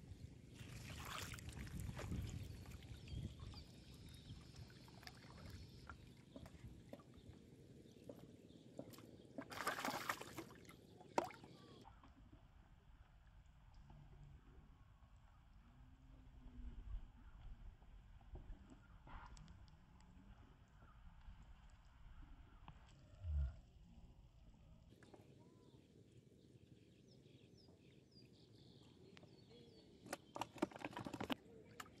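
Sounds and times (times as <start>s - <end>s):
water sloshing and splashing: 0.6s - 7.2s, 8.8s - 11.6s, 30.1s - 32.0s.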